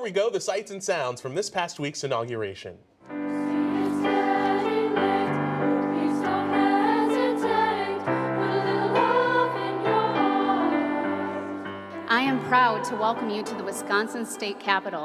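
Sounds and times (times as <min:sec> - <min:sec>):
instrumental accompaniment: 0:03.0 - 0:15.0
children's choir singing: 0:03.1 - 0:13.5.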